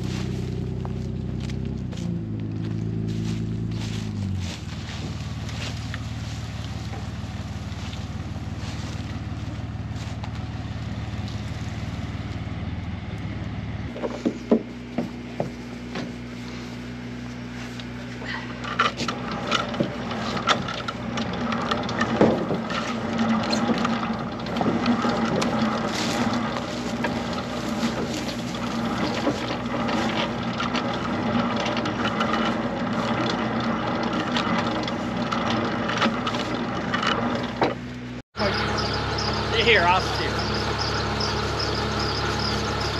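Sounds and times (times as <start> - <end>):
engine running: 0.0 - 42.9
sharp knocks and clatter: 13.9 - 16.2, 18.7 - 37.8.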